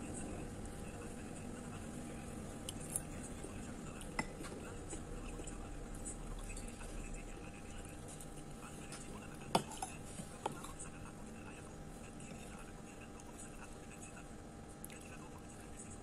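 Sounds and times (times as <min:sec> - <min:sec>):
low background noise: 0:00.0 - 0:16.0.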